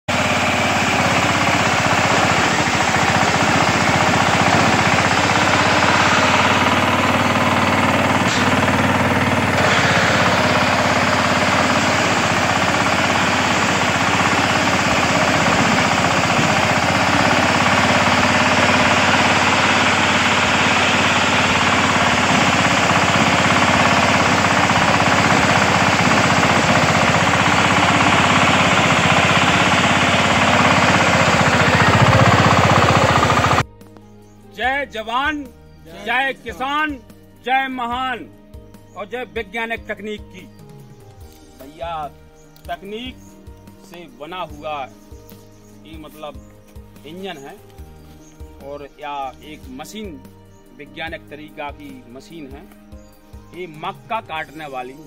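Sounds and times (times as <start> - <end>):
small engine running: 0.0 - 33.7.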